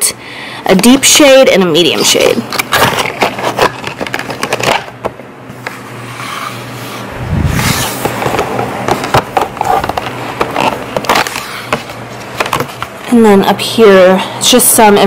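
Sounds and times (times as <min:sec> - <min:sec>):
plastic packaging clicking and scraping: 0:02.4 - 0:05.2, 0:07.7 - 0:12.9
muffled rubbing with low rumble: 0:06.1 - 0:08.8.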